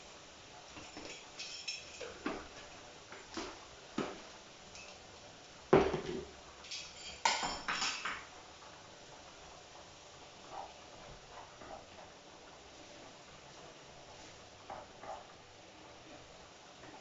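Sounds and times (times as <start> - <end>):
utensil and containers clinking: 0.8 - 2.8, 6.6 - 8.2.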